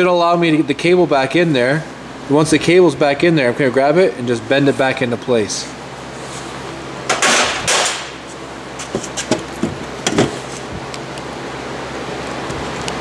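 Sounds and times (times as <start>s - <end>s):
heater humming: 0.0s - 13.0s
rustle of tool handling: 6.2s - 10.8s.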